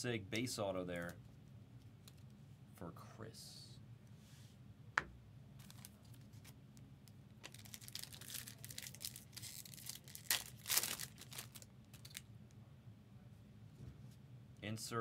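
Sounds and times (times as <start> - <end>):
wrapper tearing and crinkling: 5.6 - 6.6, 7.4 - 12.2.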